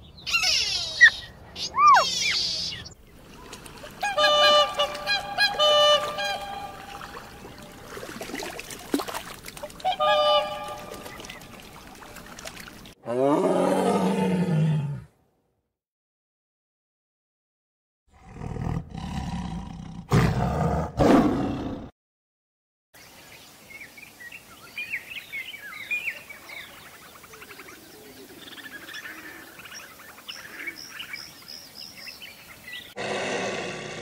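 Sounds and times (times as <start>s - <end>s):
small birds chirping: 0.0s - 4.0s, 10.8s - 13.0s
lion roaring: 13.0s - 15.1s, 18.2s - 21.9s, 33.0s - 34.0s.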